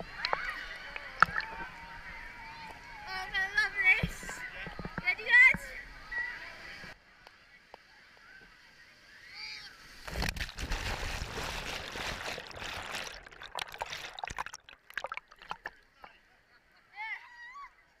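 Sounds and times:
underwater bubbling and splashing: 0.0 - 1.8, 10.1 - 16.0
wave rushing water: 10.0 - 15.8.

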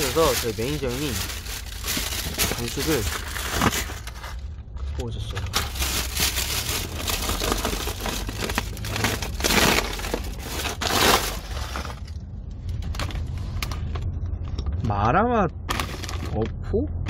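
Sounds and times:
plastic snack bag rustling: 0.0 - 4.4, 5.2 - 12.1.

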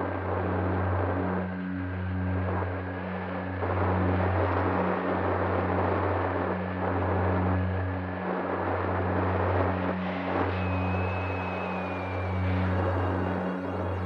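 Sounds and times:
wind on microphone: 2.3 - 14.0
faint thin whine: 10.1 - 14.0.

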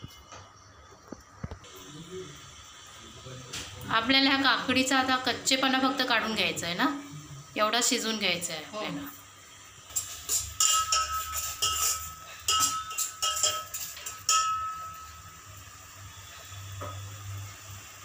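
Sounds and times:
spoon scraping metal pot: 9.9 - 14.8.

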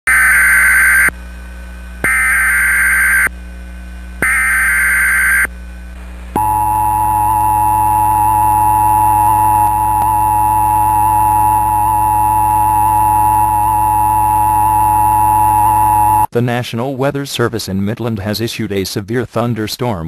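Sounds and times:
steady single-pitch alarm tone: 0.1 - 1.2, 2.0 - 3.3, 4.2 - 5.5, 6.4 - 16.3
buzzing digital data bursts: 2.1 - 3.3, 4.2 - 5.5, 6.4 - 16.3.

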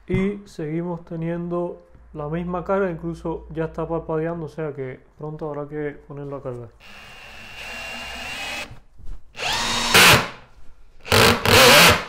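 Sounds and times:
cordless drill motor whining: 6.8 - 8.7, 9.4 - 10.3.

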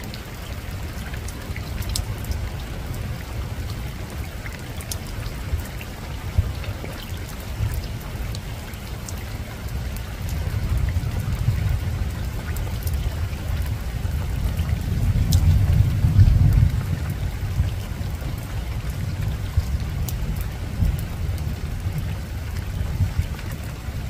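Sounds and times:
rain on a roof: 0.0 - 24.0
distant thunder rumble: 10.4 - 23.4.

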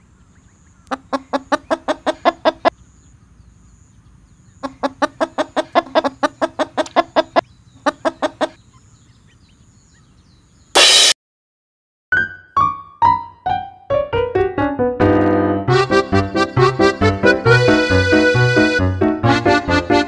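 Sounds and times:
duck quacking: 0.9 - 2.7, 4.6 - 8.6
short loud burst of noise: 10.8 - 11.2.

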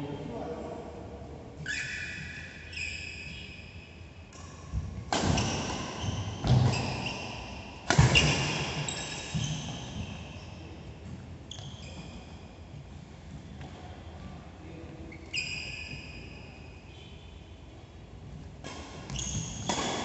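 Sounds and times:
shoes squeaking on court: 1.6 - 17.3, 18.8 - 20.0
racket striking shuttlecock: 4.3 - 7.0, 7.8 - 8.9, 18.6 - 20.0.

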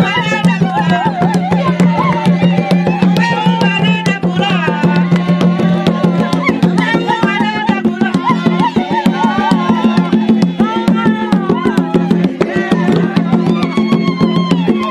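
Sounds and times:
fast hand drumming: 0.0 - 14.9
voices singing: 0.0 - 14.9.

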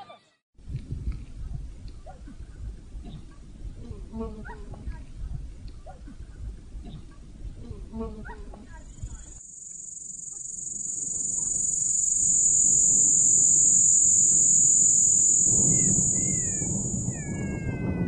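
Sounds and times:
insect chirring: 8.9 - 17.5
short high falling calls: 9.5 - 17.8.

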